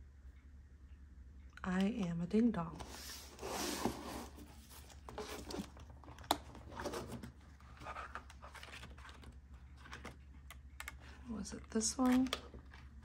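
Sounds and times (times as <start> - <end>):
plastic envelopes rustling: 2.9 - 13.0.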